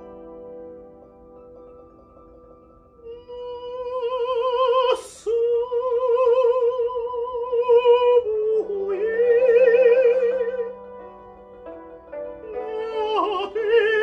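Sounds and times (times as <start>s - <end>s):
man singing operatically: 3.2s - 10.8s, 12.5s - 14.0s.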